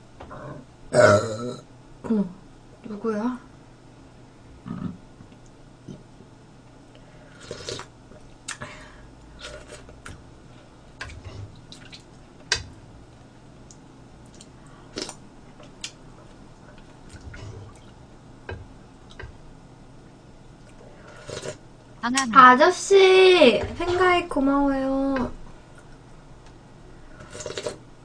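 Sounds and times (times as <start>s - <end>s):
slurping and chewing: 7.3s - 7.9s, 9.3s - 10.1s, 14.2s - 18.0s, 20.6s - 21.6s, 27.1s - 27.8s.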